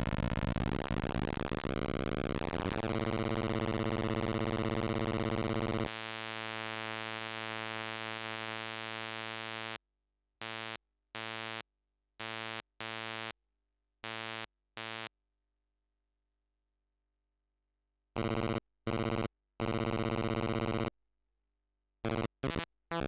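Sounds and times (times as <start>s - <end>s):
buzzy electronic drone: 0.0s - 5.9s.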